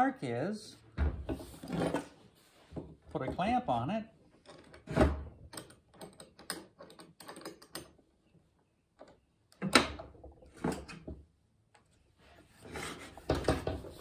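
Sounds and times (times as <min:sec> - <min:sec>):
knocks of metal and wood: 0:13.2 - 0:14.0.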